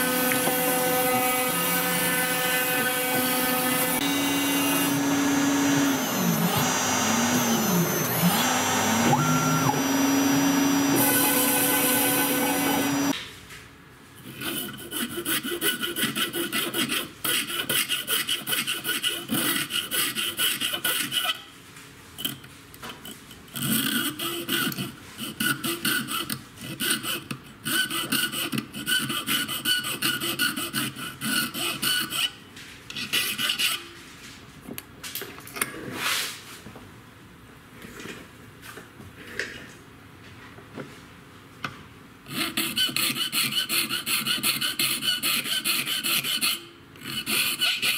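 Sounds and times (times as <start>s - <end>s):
file scraping panel edge: 0.0s - 13.2s.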